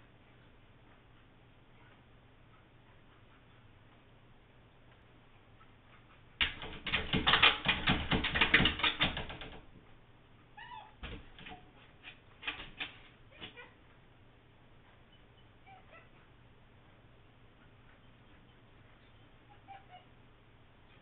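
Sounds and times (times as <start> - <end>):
dog claws scratching glass door: 6.4 - 9.6, 11.0 - 13.6
taps on door: 6.4 - 9.6
dog whining: 10.6 - 11.0, 15.6 - 16.3, 19.5 - 20.2.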